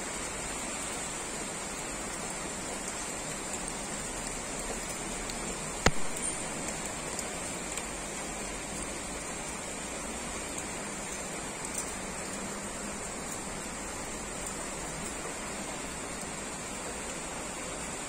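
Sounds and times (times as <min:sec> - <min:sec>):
heavy rain falling: 0:00.0 - 0:18.0
sharp click: 0:05.8 - 0:06.4.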